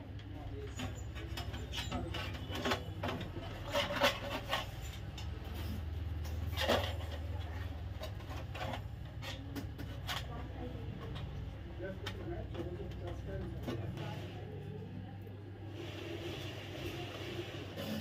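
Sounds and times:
sheet metal rubbing and scraping: 0:00.7 - 0:10.3.

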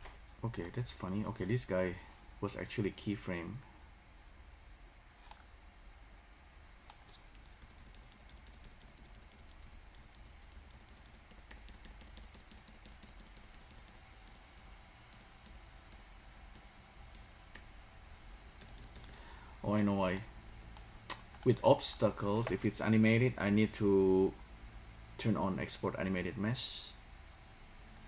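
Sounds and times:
computer keys clicking: 0:06.9 - 0:17.7, 0:18.6 - 0:19.2, 0:20.1 - 0:21.6.

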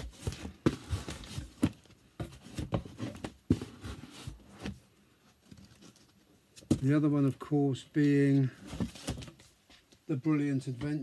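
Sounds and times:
record sleeves rustling: 0:00.0 - 0:07.4, 0:08.0 - 0:09.9
vinyl records knocking and clicking: 0:10.7 - 0:11.0.

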